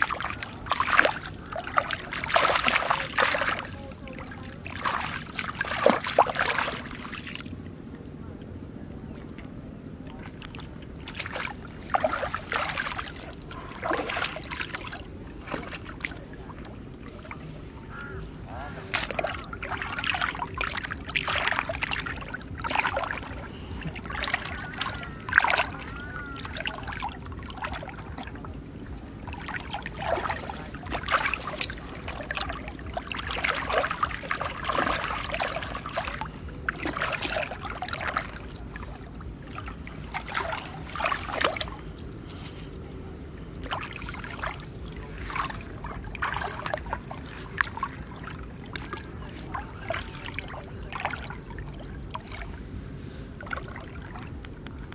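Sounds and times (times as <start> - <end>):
splashing through muddy water: 0.0 - 7.7, 9.1 - 54.9.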